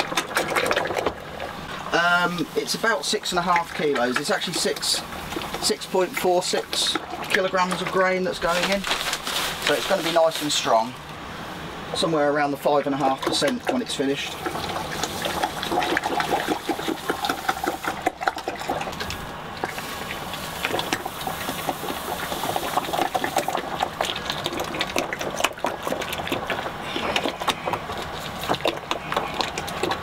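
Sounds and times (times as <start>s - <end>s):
paddle stirring wet grain: 0.0s - 10.9s, 12.9s - 30.0s.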